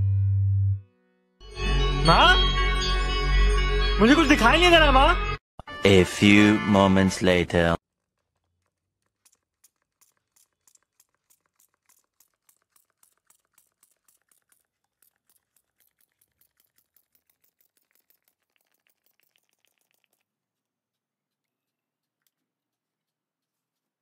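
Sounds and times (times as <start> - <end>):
spray bottle spritzing: 9.0 - 20.2.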